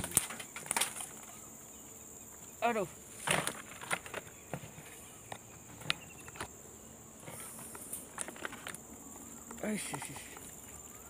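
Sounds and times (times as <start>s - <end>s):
twigs snapping underfoot: 0.0s - 1.4s
insects droning: 0.0s - 11.0s.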